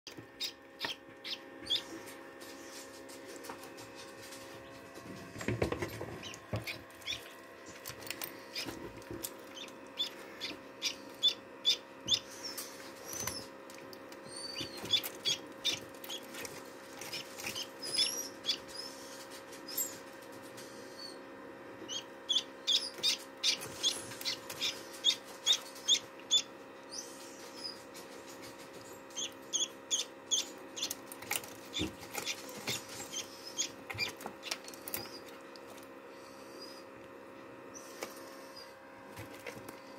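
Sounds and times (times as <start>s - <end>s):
incubator hum: 0.1s - 39.9s
duckling peeping: 0.4s - 2.8s, 6.1s - 13.6s, 14.2s - 19.1s, 21.8s - 27.9s, 29.1s - 35.4s.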